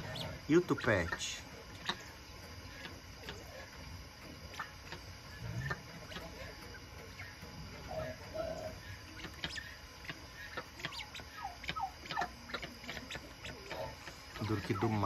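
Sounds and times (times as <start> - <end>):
guineafowl soft falling calls: 0.0 - 15.0.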